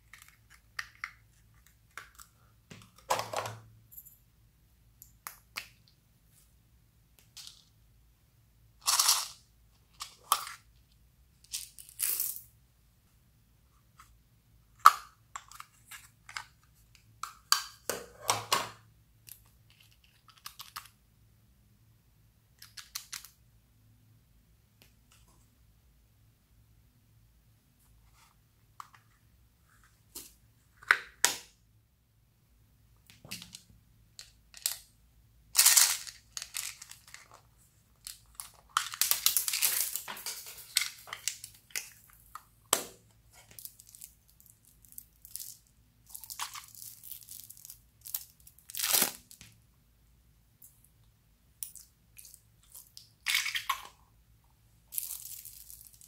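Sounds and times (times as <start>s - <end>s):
plastic capsules clicking and snapping: 0.0s - 3.5s, 19.2s - 21.0s, 33.1s - 34.9s, 35.6s - 37.4s, 38.0s - 42.8s
plastic crinkling and rustling: 35.7s - 42.0s.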